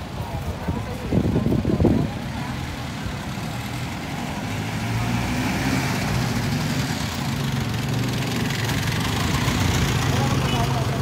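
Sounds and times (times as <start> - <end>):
vehicle engine driving past: 2.8 - 11.0.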